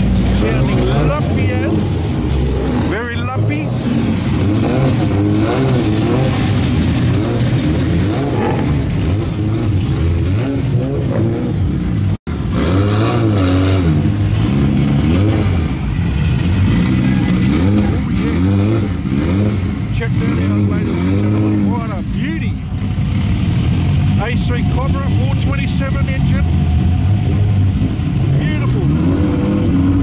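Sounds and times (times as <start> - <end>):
people's voices: 0.0 - 9.0, 16.5 - 19.2, 19.8 - 22.8, 24.0 - 26.6, 28.2 - 29.8
car engines revving: 0.0 - 30.0.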